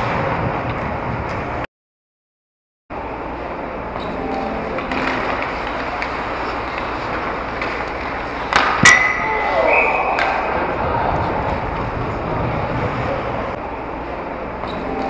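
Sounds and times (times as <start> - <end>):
skates on ice: 4.8 - 13.5
faint murmur of voices: 9.2 - 15.0.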